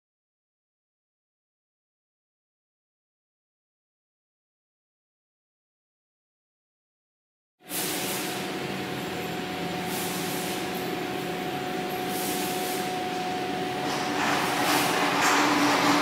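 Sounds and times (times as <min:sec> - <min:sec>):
diesel generator running: 0:07.7 - 0:16.0
steady whine: 0:08.2 - 0:16.0.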